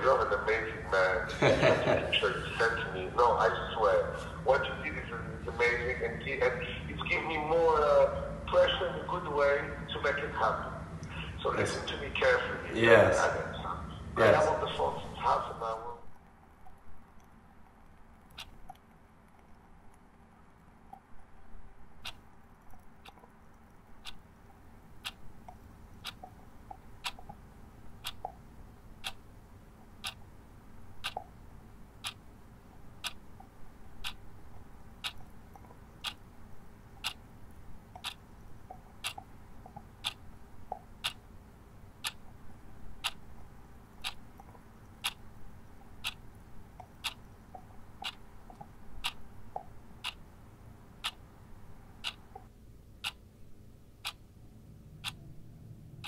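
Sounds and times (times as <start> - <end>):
faint hum: 0.0 - 56.0
clock ticking: 16.0 - 53.2, 53.9 - 54.4, 55.0 - 55.3.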